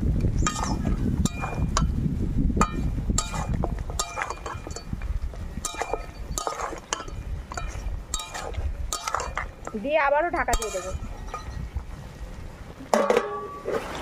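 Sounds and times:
metal spatula clinking on pan: 0.4s - 1.9s, 2.6s - 5.0s, 5.6s - 11.6s.

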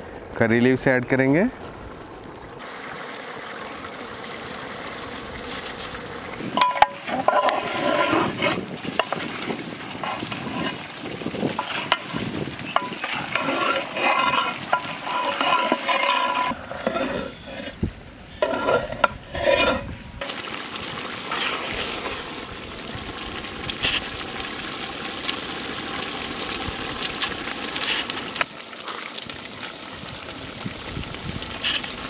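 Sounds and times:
curry simmering hiss: 0.0s - 32.0s
metal ladle scraping a pot: 6.5s - 20.0s.

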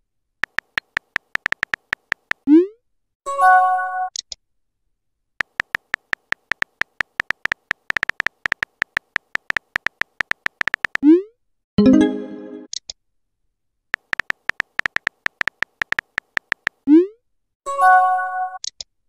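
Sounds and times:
keyboard tap clicks: 0.4s - 2.4s, 5.4s - 11.0s, 14.0s - 16.8s.

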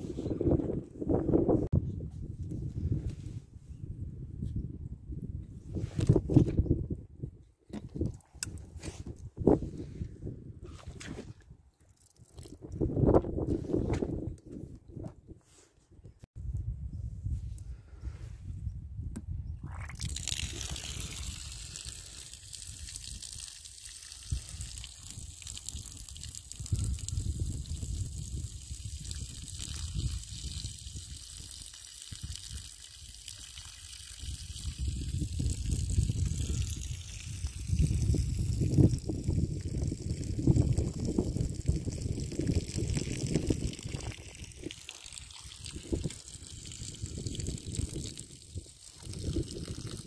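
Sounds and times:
water trickling onto ground: 11.8s - 13.1s, 19.7s - 50.0s.

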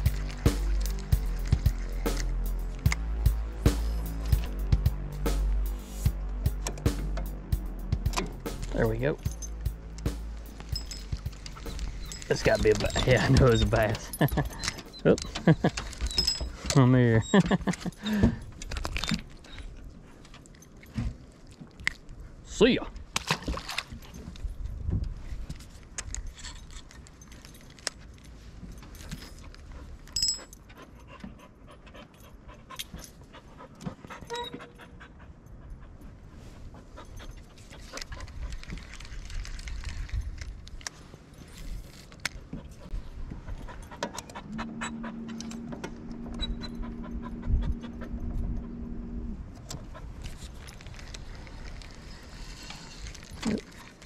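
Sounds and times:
dog panting: 29.4s - 38.8s, 42.4s - 45.7s, 46.3s - 48.9s, 49.6s - 50.6s.

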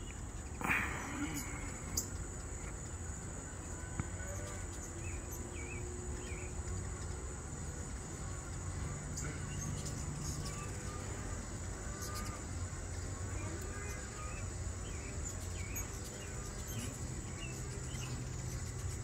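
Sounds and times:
insects chorus: 0.0s - 19.0s
bird chirps: 9.1s - 11.1s.

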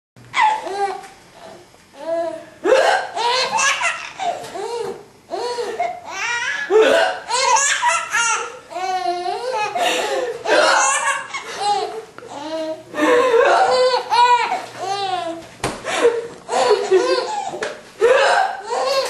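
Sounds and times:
baby laughing: 0.4s - 1.6s, 3.2s - 12.8s, 13.4s - 15.4s, 16.5s - 17.7s, 18.6s - 19.0s
woman hiccuping: 2.6s - 3.2s, 6.7s - 7.3s, 18.0s - 18.7s.

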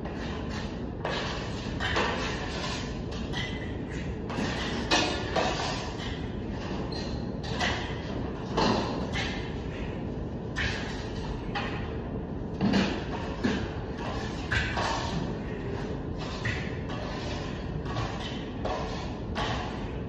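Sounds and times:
steady low rumble: 0.0s - 20.0s
hand tools scraping plaster: 0.1s - 6.7s, 16.2s - 19.8s.

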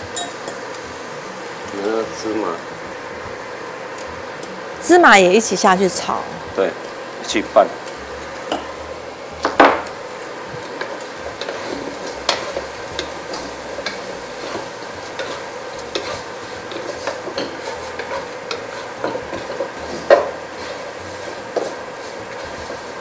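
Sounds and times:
light sizzle: 0.0s - 23.0s
wooden spatula scraping in wok: 10.6s - 23.0s.

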